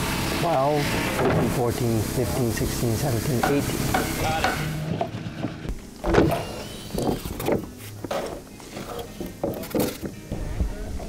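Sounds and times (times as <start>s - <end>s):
small motor humming: 5.7s - 7.7s.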